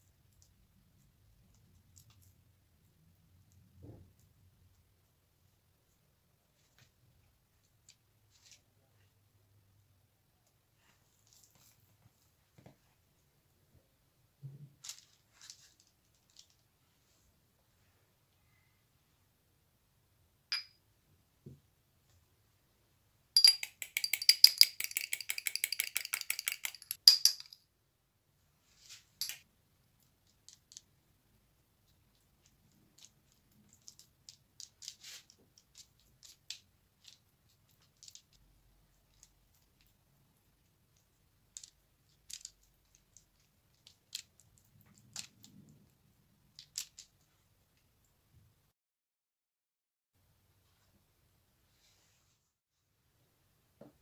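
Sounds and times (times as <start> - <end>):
soft brushing: 51.7 - 52.6.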